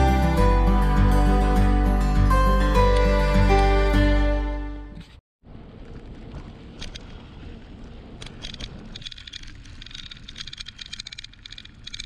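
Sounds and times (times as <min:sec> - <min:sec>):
bicycle tyres on gravel: 0:05.4 - 0:12.0
rapid clicking and rattling: 0:08.2 - 0:12.0.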